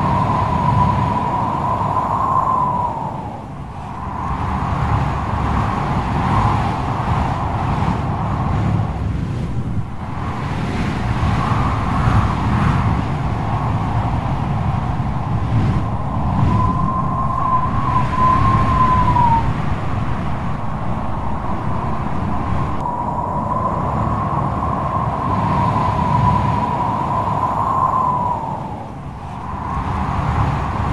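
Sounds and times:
strong wind: 0.0 - 30.9
high wavering whine: 13.2 - 30.9.

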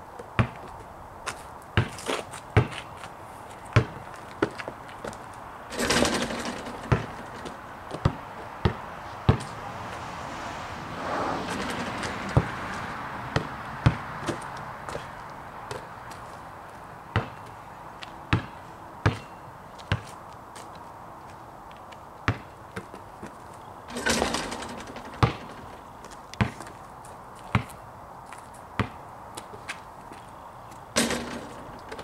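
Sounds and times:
basketball bouncing: 0.4 - 0.6, 3.8 - 4.5, 5.7 - 9.5, 11.6 - 14.4, 17.1 - 17.4, 18.3 - 19.3, 22.3 - 22.9, 23.9 - 26.8, 27.5 - 27.8, 28.8 - 29.0, 31.0 - 32.0.

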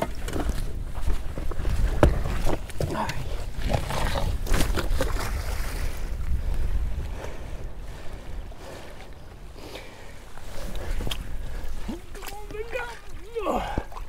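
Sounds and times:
water splashing: 0.0 - 14.0
wind rumbling on microphone: 0.0 - 14.0.

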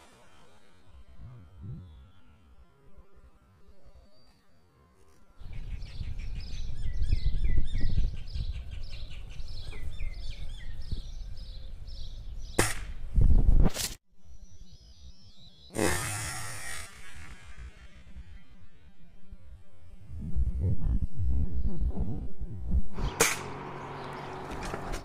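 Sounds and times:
small birds chirping: 3.6 - 13.4, 23.0 - 25.0
wind rumble on microphone: 5.4 - 13.8, 19.4 - 23.2
air rifle shots: 12.6 - 13.0, 23.0 - 23.7.

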